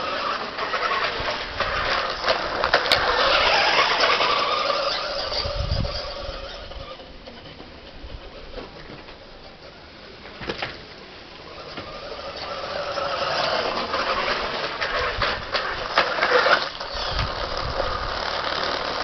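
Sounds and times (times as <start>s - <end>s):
toy truck motor and gears whirring: 0.0s - 10.1s, 11.3s - 19.0s.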